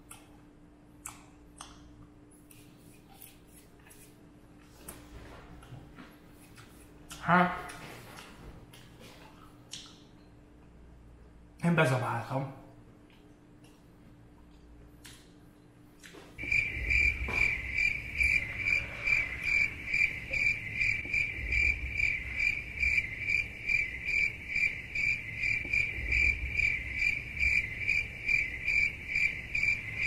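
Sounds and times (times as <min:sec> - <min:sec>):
faint low rumble: 0:16.3 - 0:30.0
cricket chirping: 0:16.4 - 0:30.0.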